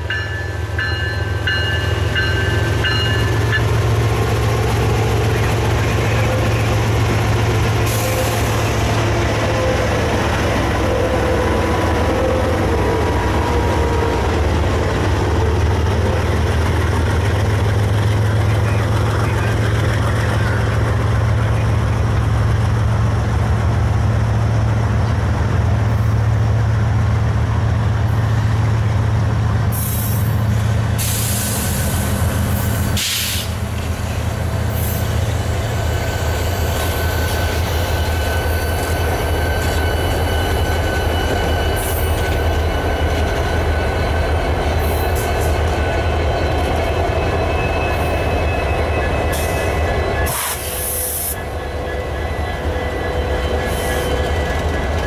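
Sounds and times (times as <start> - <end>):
diesel locomotive engines droning: 0.0 - 55.0
short bursts of hiss: 33.0 - 33.6
high wheel squeal: 34.6 - 55.0.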